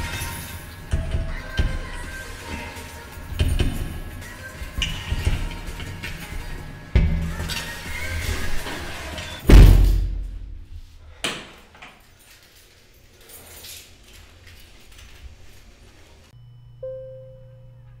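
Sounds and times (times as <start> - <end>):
heavy door slamming shut: 9.4 - 10.7
low steady hum: 12.2 - 18.0
brief tone: 16.4 - 18.0.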